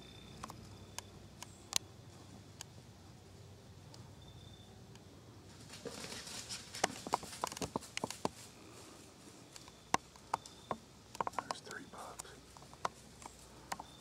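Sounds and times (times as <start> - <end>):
dry leaves rustling and crunching: 5.5 - 9.4.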